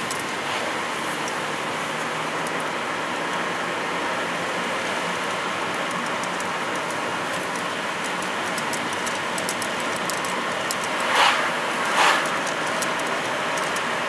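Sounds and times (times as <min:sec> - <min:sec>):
road and wind noise in car: 0:00.0 - 0:14.0
light ticking rattles: 0:01.1 - 0:03.5, 0:05.1 - 0:11.1, 0:11.8 - 0:14.0
cars whooshing past: 0:11.0 - 0:12.7.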